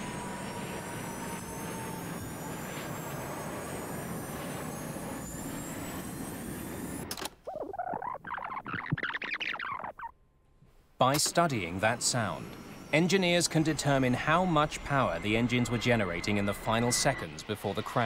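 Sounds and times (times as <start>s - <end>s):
jet engines spooling up: 0.0s - 9.9s, 11.0s - 18.0s
irregular warbling sound: 7.4s - 10.2s.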